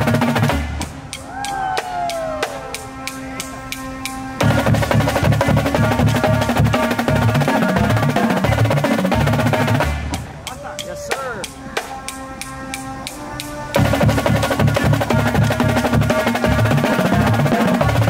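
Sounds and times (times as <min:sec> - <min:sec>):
drum ticking: 0:00.0 - 0:18.0
pitched bass drums: 0:00.0 - 0:18.0
snare drums rolling: 0:00.0 - 0:18.0.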